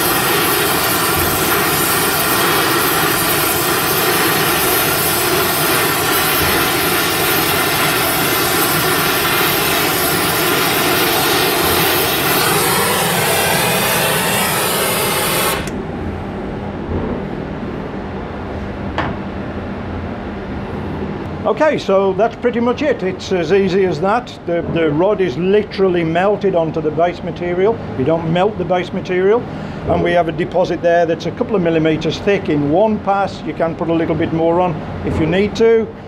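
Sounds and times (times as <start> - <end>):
gas torch flame hissing: 0.0 - 15.8
steady hum: 0.0 - 36.0.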